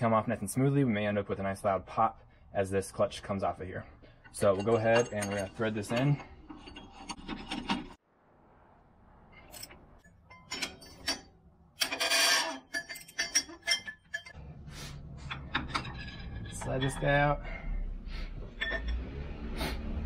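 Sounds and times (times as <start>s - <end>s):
metal tools scraping and clinking: 3.8s - 8.0s, 9.4s - 14.4s, 15.2s - 17.4s, 18.5s - 19.1s
rasping scrape: 4.1s - 8.0s, 10.7s - 17.1s.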